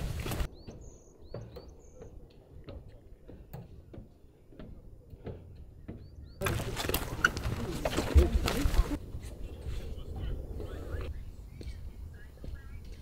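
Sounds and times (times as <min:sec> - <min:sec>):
footsteps on a trail: 0:00.0 - 0:09.9
small bird chirping: 0:00.5 - 0:02.6.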